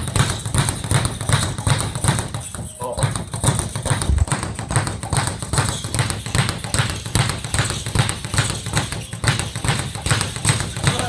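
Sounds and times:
speed bag being punched: 0.0 - 11.0.

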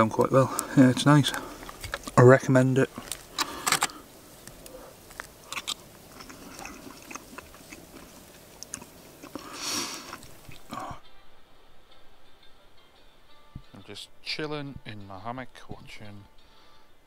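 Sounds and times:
chewing: 0.5 - 2.2, 2.9 - 11.0.

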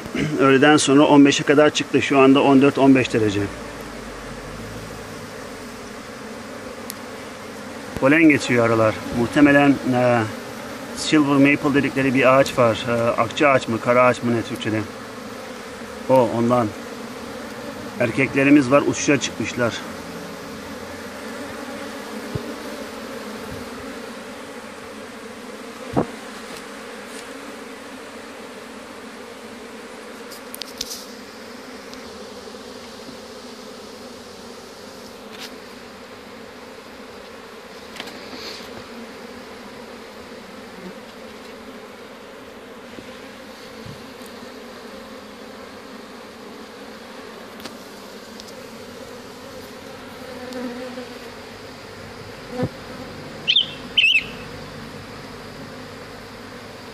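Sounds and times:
bees buzzing: 0.0 - 56.9.

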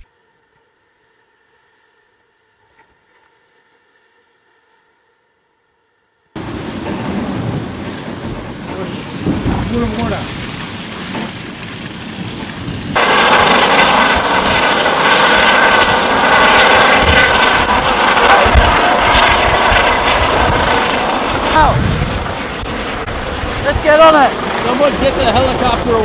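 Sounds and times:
wind: 0.0 - 26.0
helicopter flying close by: 6.4 - 26.0
rushing water: 6.4 - 26.0.

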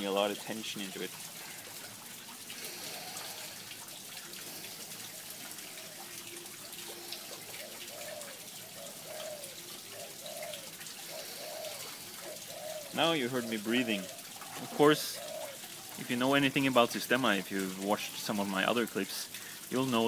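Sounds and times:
man breathing in and out: 1.3 - 5.8, 11.0 - 12.7, 19.3 - 19.7.

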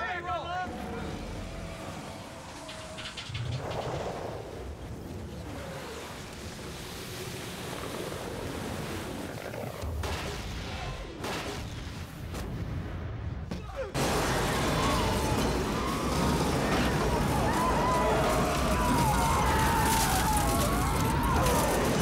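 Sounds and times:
rushing water: 5.2 - 10.0.

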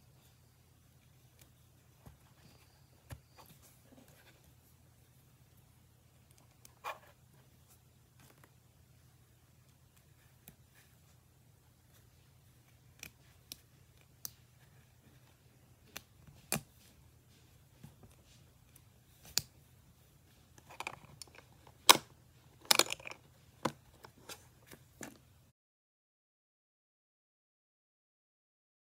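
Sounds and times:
plastic building bricks clicking: 20.6 - 24.1.

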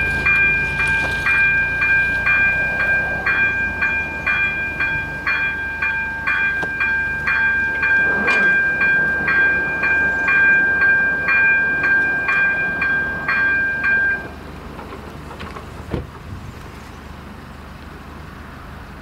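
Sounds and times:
steady ringing tone: 0.0 - 14.3
level-crossing bell ringing: 0.0 - 14.4.

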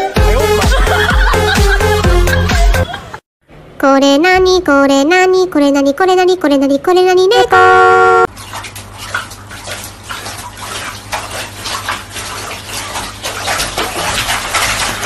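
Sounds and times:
dog splashing water in bathtub: 8.3 - 15.0.

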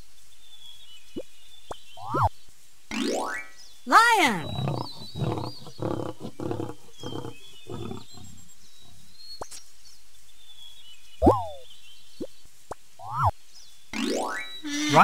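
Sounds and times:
lion roaring and grunting: 4.4 - 9.0.

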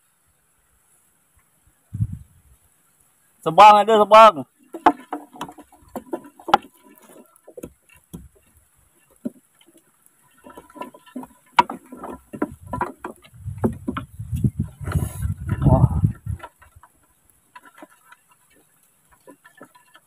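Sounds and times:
low rumble on microphone: 1.9 - 2.6, 12.5 - 16.4
wooden boat knocks and taps: 4.7 - 18.3.

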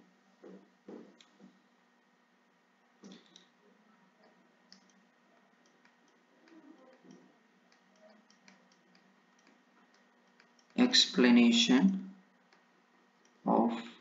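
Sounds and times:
faint steady hum: 0.0 - 14.0
stylus tapping tablet screen: 4.2 - 10.8.

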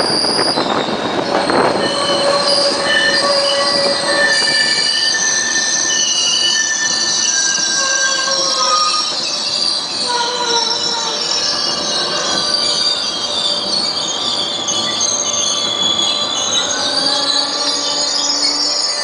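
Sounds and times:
train rolling rumble: 0.0 - 19.0
train wheels and brakes squealing: 0.0 - 19.0.

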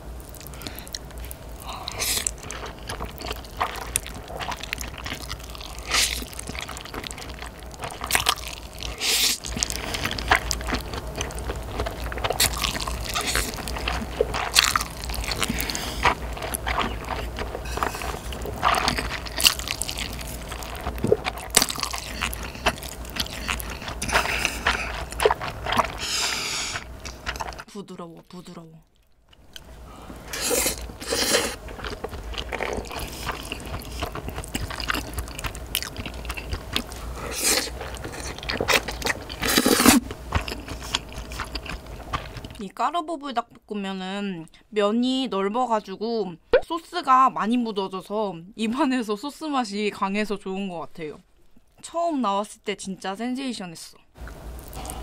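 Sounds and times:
wet chewing: 0.2 - 27.7, 28.8 - 42.7, 54.2 - 55.0
person slurping noodles: 1.6 - 7.2, 7.9 - 10.6, 12.2 - 27.6, 30.2 - 41.7.

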